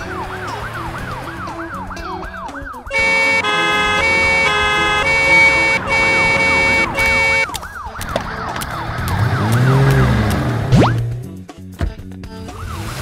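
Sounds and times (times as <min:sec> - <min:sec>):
cartoon ambulance siren wailing: 0:00.0 - 0:10.2
synth tune in held chords: 0:02.9 - 0:07.5.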